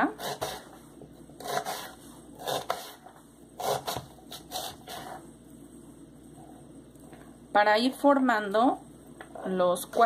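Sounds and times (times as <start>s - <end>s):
knife slicing onion on board: 0.0s - 0.7s, 1.4s - 5.2s.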